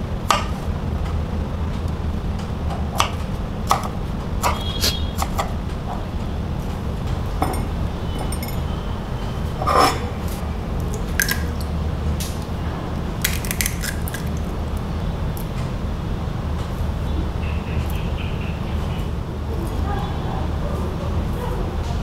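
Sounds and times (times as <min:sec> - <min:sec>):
steady low hum: 0:00.0 - 0:22.0
clicks and squishes of pepper: 0:10.8 - 0:12.4, 0:13.2 - 0:14.5
eggs cracking into bowl: 0:10.8 - 0:12.4, 0:13.2 - 0:14.5.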